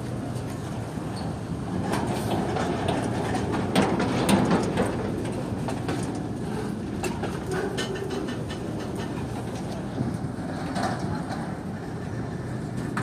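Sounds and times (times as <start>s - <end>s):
train wheels rumbling on rails: 0.0s - 13.0s
wagon clanks and clicks: 1.7s - 10.0s.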